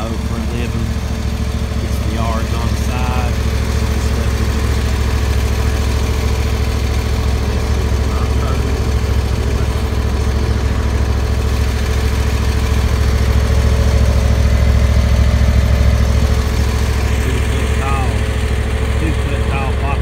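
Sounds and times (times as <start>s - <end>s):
mower engine droning: 0.0s - 20.0s.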